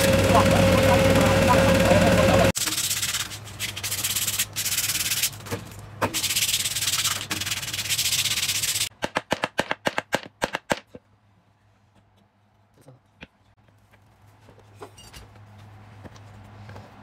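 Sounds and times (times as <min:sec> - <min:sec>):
sandpaper scratching wood: 0:02.6 - 0:05.4, 0:06.0 - 0:08.9.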